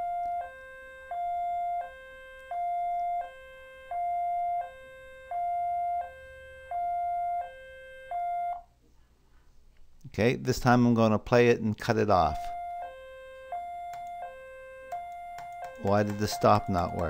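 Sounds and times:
two-tone siren: 0.0s - 8.7s, 12.4s - 17.0s.

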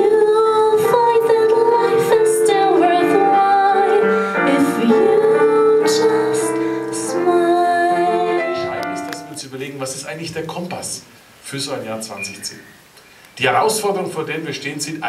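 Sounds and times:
woman singing into microphone: 0.0s - 9.1s
piano accompaniment: 0.0s - 10.4s.

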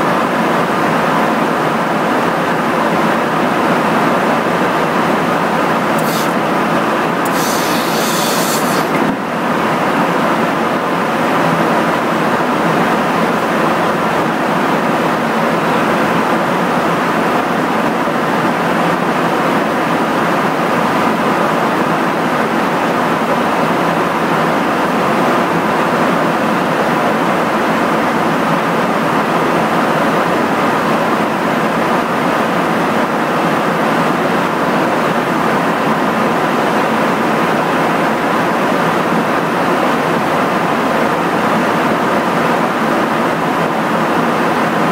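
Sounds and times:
jet engine and airflow roar: 0.0s - 44.9s
high hiss: 6.0s - 6.5s, 7.2s - 9.1s.

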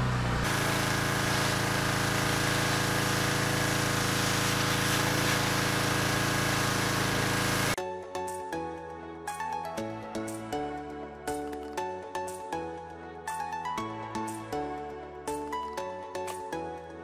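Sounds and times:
small engine humming: 0.0s - 7.8s
high-pressure water jet hissing: 0.4s - 7.8s.

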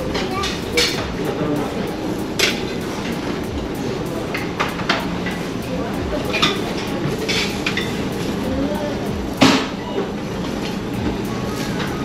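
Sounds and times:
steady low hum: 0.0s - 12.0s
metal tongs clacking on dish: 6.2s - 8.1s.

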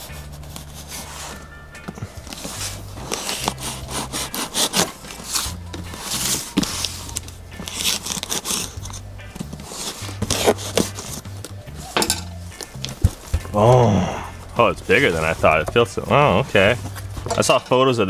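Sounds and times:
knife cutting cardboard: 2.2s - 11.3s.

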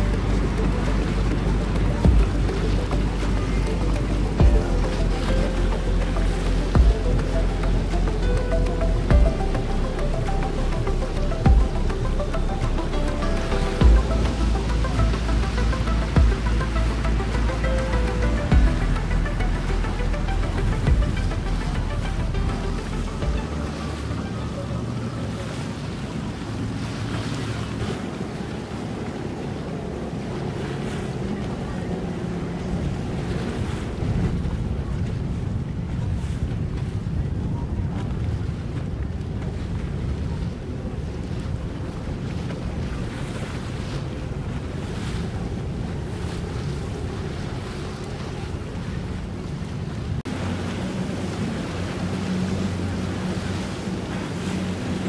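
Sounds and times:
low steady hum: 0.0s - 25.5s
boat motors humming: 0.0s - 55.0s
water noise: 0.0s - 55.0s
wind buffeting microphone: 0.0s - 55.0s.

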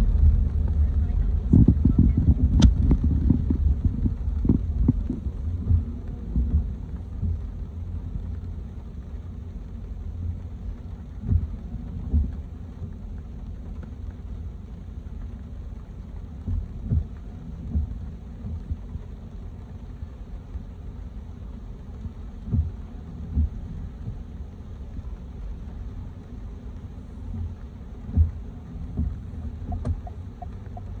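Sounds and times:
car driving on wet streets: 0.0s - 31.0s
dull thumps: 28.1s - 31.0s.

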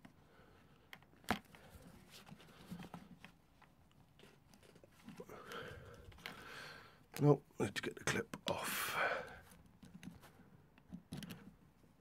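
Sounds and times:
handling clicks and rubbing: 0.8s - 6.4s, 9.4s - 12.0s.

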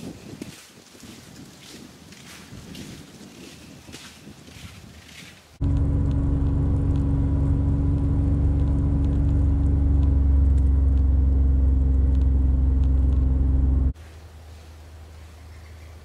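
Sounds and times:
utility vehicle engine running: 5.6s - 14.0s.

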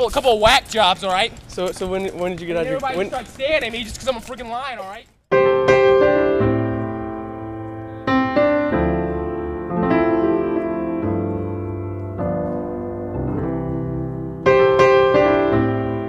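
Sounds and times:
slow piano music: 5.3s - 16.0s.

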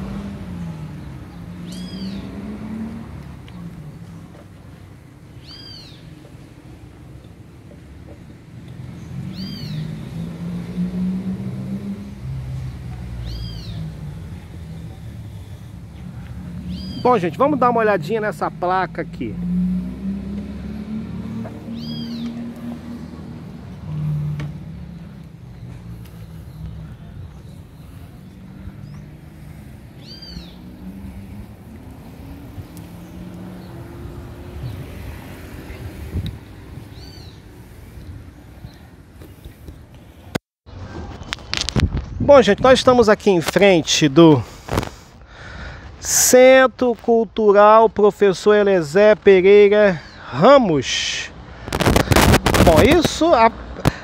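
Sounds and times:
passing vehicle engine hum: 0.0s - 42.0s, 48.1s - 54.0s
high arched bird call: 1.6s - 2.4s, 5.4s - 6.1s, 16.7s - 17.2s, 21.7s - 22.4s, 30.0s - 30.8s
short high arching calls: 1.6s - 2.9s, 5.4s - 6.1s, 9.2s - 10.0s, 13.2s - 13.9s, 16.6s - 17.7s, 21.6s - 23.0s, 26.1s - 31.5s.

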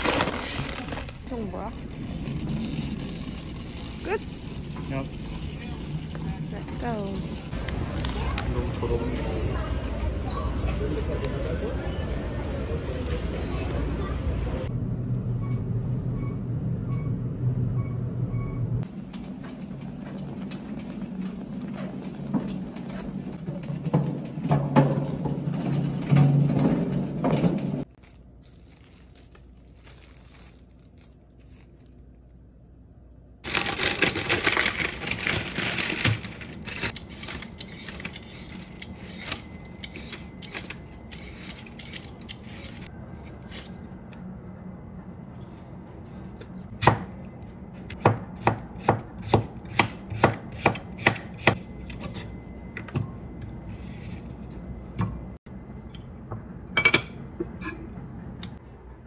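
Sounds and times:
plastic bag crinkling: 0.0s - 1.8s, 27.9s - 32.3s, 33.4s - 39.6s.

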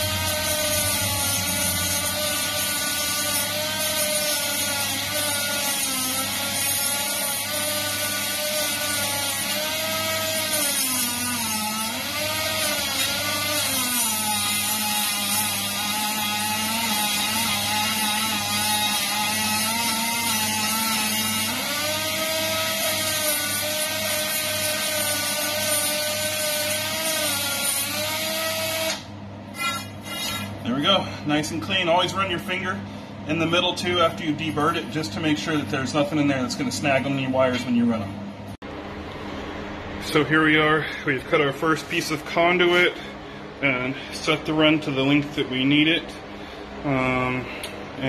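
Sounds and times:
rotary tool high whine: 0.0s - 38.1s.

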